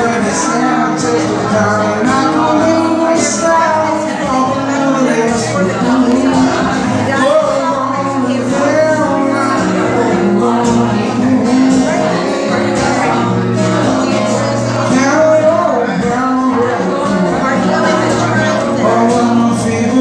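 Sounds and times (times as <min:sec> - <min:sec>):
acoustic guitar: 0:00.0 - 0:20.0
man singing: 0:00.0 - 0:20.0.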